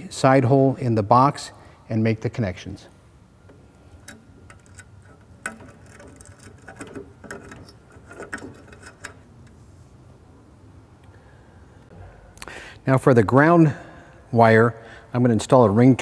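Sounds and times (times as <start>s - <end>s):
small clicks and knocks: 3.5s - 9.6s
rubber cord rubbing: 3.9s - 9.8s.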